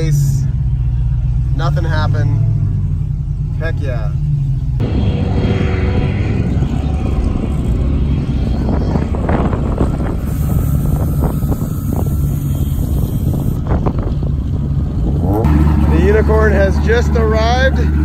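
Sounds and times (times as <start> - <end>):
car engines running: 0.0 - 18.0
wind buffeting microphone: 4.8 - 15.5.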